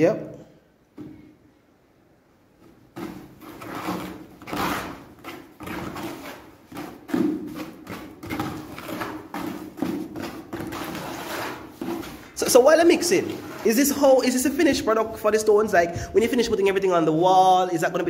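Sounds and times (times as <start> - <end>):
trowel scraping mortar in bucket: 3.0 - 14.5.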